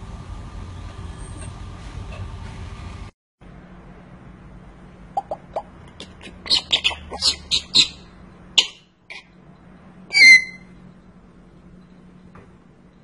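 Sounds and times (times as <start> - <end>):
parrot clicks and squeaky chirps: 5.2 - 8.0, 8.6 - 9.3, 10.1 - 10.7
parrot sharp squeaks: 6.0 - 9.3, 10.1 - 10.7.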